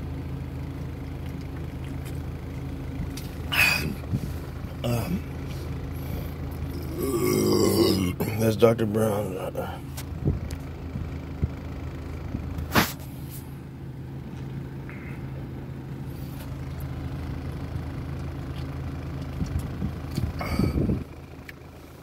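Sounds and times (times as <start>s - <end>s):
car engine idling: 0.0s - 22.0s
burst of breath: 20.4s - 21.0s.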